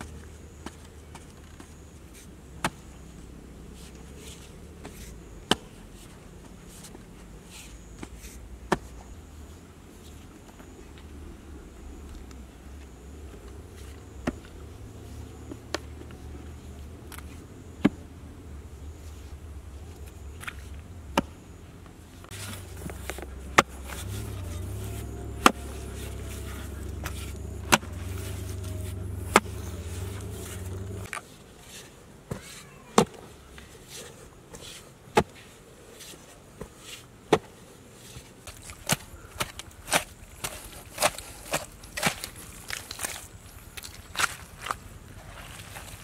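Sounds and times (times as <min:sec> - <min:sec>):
steady low rumble: 0:08.4 - 0:31.1
digging tool chopping into earth: 0:27.0 - 0:28.2, 0:38.5 - 0:43.2.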